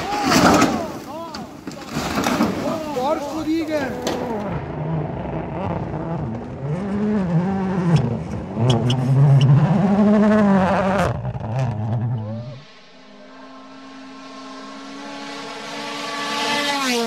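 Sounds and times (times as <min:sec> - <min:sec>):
car sliding on gravel: 0:00.0 - 0:04.5
rally car engine revving: 0:04.0 - 0:17.0.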